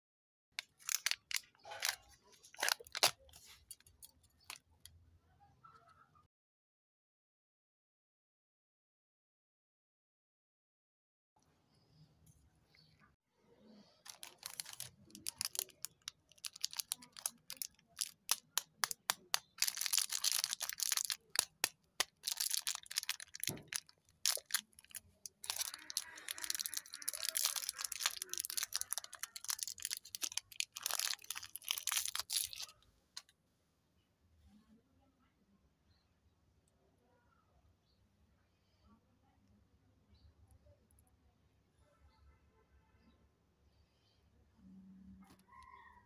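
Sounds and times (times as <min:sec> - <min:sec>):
wrapper crinkling and tearing: 0:00.6 - 0:04.6, 0:14.0 - 0:32.8.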